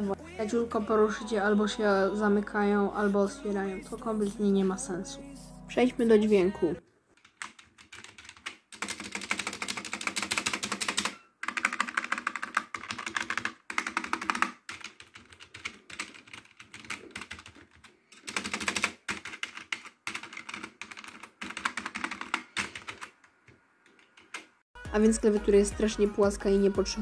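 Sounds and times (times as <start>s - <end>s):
keyboard typing clatter: 7.2s - 23.2s, 23.8s - 24.6s.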